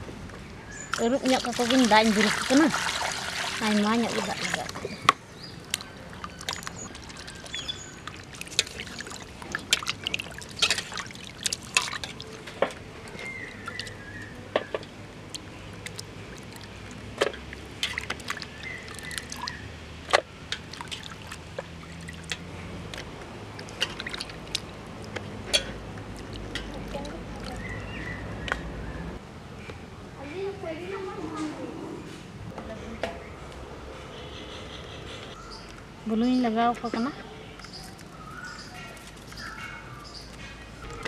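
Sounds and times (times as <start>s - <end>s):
water splashing in a steel bowl: 0.9s - 4.9s, 5.6s - 14.0s, 14.8s - 27.8s.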